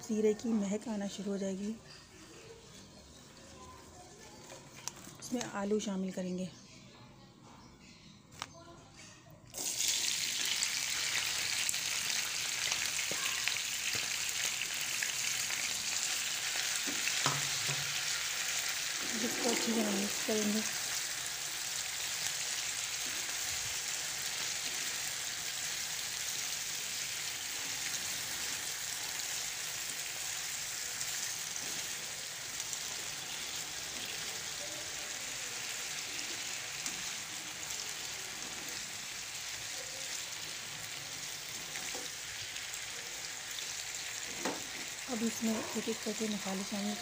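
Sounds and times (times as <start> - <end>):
potatoes sizzling in oil: 9.6 - 47.0.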